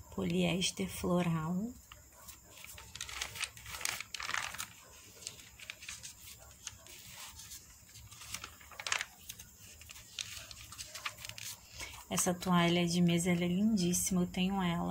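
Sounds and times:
paper pages rustling: 1.1s - 13.0s.

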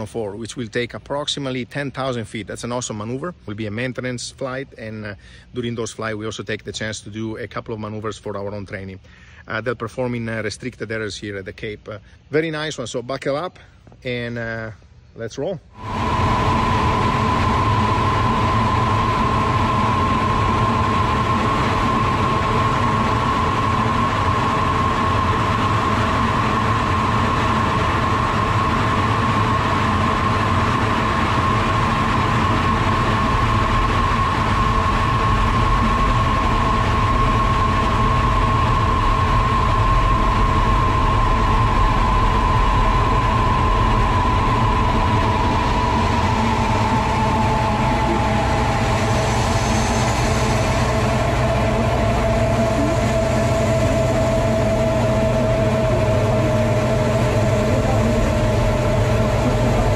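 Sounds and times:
constant high whine: 0.0s - 59.9s
jet cockpit air rush: 15.7s - 59.9s.

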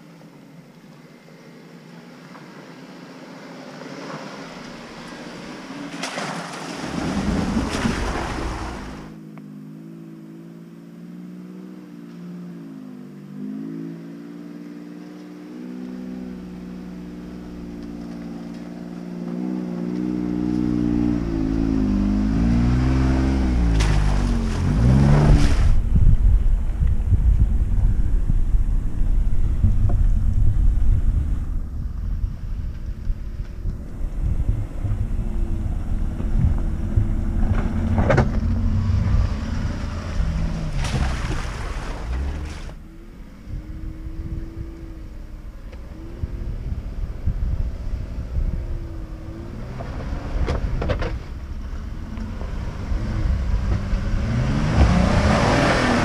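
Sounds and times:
off-road vehicle engine labouring: 0.0s - 56.0s
wind buffeting microphone: 23.3s - 56.0s.

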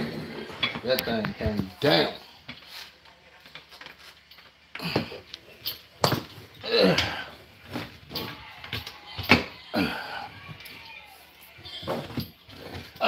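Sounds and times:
man groaning and sighing: 6.6s - 7.4s, 9.7s - 10.5s.

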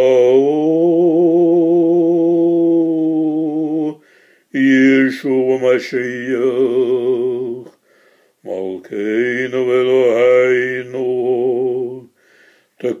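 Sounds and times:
breath: 4.0s - 4.5s, 7.8s - 8.4s, 12.1s - 12.8s
man chanting prayer: 4.6s - 7.7s, 8.4s - 12.1s, 12.8s - 13.0s.

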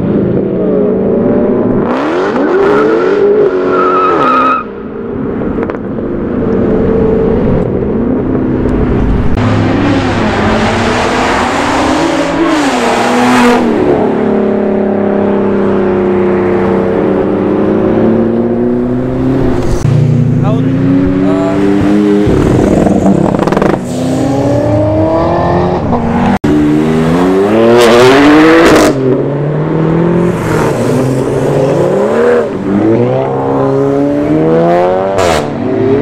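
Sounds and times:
car engines revving: 0.0s - 36.0s
tires squealing: 2.3s - 4.7s.

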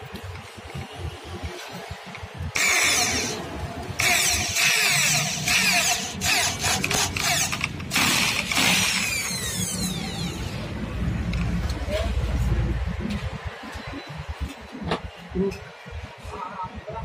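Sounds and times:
electric drill boring: 2.5s - 3.4s, 4.0s - 10.6s.

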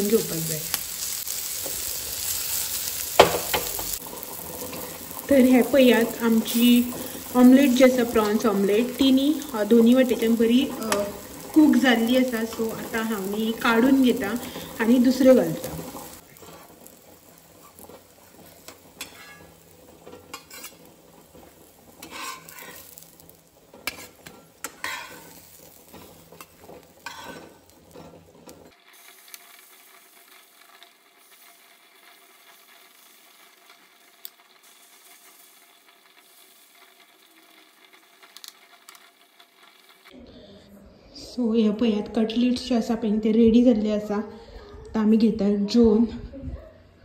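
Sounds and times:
oil sizzling in a pan: 0.0s - 40.2s
metal spatula scraping a pan: 0.1s - 40.1s.

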